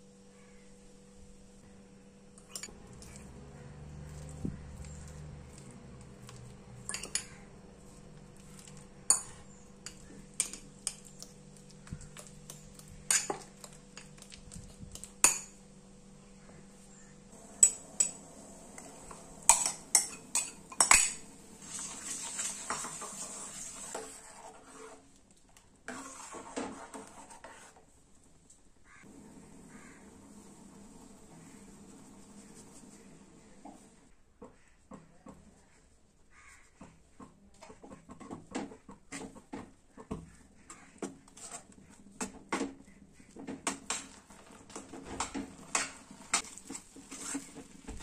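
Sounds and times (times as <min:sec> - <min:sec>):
spoon scraping and sloshing in pan: 0:02.4 - 0:15.6, 0:17.4 - 0:25.2, 0:25.9 - 0:27.9, 0:43.2 - 0:48.0.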